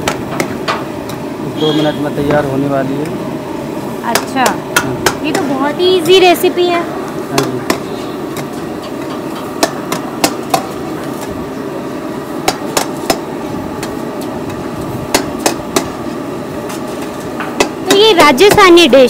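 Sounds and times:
kitchen noise hiss: 0.1s - 19.0s.

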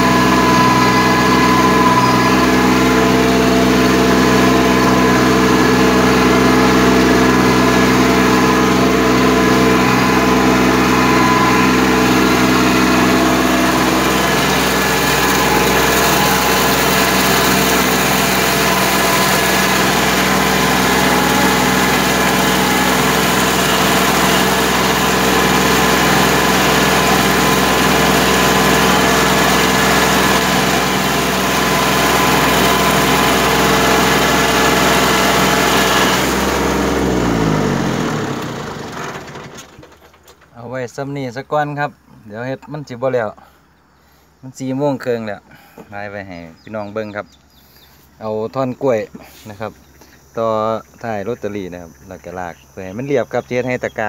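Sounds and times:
tractor diesel engine under load: 0.0s - 40.9s.

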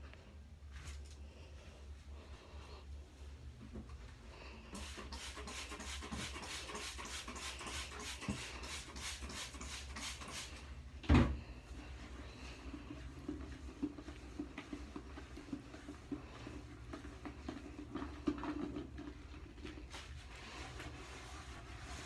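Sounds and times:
sponge scrubbing toilet bowl: 4.5s - 10.8s, 11.5s - 22.0s.

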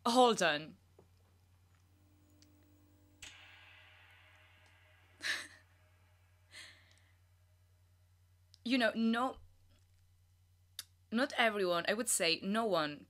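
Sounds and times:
woman laughing quietly: 5.2s - 5.7s, 6.5s - 6.9s.

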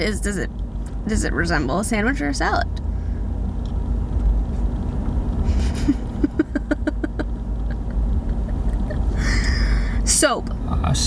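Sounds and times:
low rumble inside car: 0.0s - 11.0s
person laughing: 5.5s - 9.9s.

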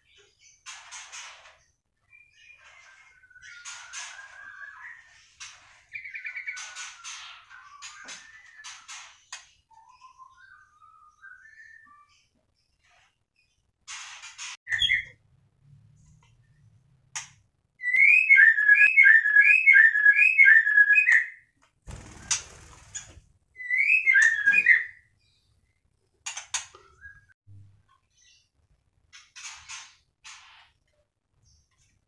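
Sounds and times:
harsh scratchy bird calls: 0.6s - 9.7s
bird whistling song: 2.1s - 5.2s, 5.9s - 9.0s, 9.7s - 12.3s, 14.7s - 15.2s, 17.8s - 21.5s, 23.6s - 25.1s, 26.8s - 27.4s.

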